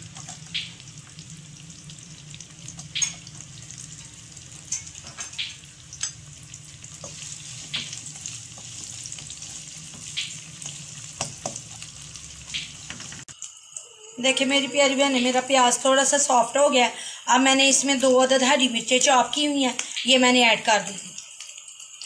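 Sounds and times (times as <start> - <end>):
oil crackling and popping: 0.0 - 13.9
onions sizzling in oil: 0.0 - 22.0.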